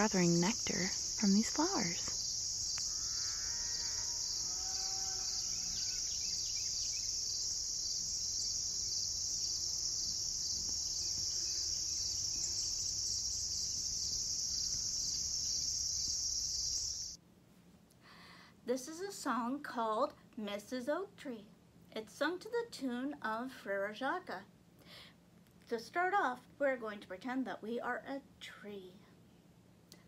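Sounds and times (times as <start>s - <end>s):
insects chorus: 0.0s - 17.2s
faint animal calls: 2.8s - 6.4s.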